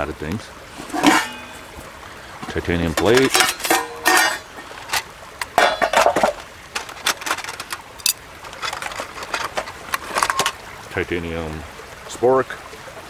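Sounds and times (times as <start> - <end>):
metal pots clinking together: 0.7 - 1.8, 2.4 - 10.6.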